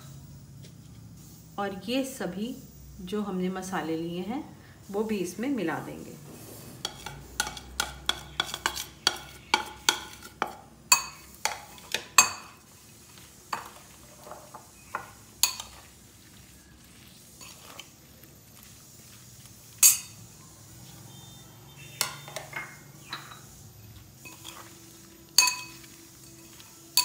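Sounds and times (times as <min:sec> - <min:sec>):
steel spoon clinking against bowls: 0:06.8 - 0:12.6, 0:13.5 - 0:15.9, 0:19.8 - 0:20.3, 0:21.9 - 0:23.6, 0:24.2 - 0:27.0.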